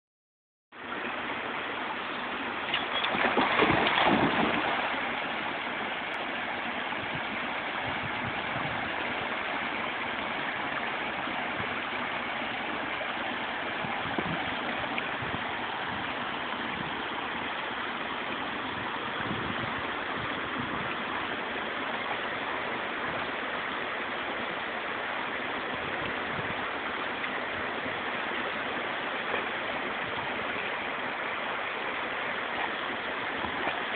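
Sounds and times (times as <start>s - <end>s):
water rushing over a weir: 0.8s - 33.9s
dog splashing into water: 2.9s - 5.2s.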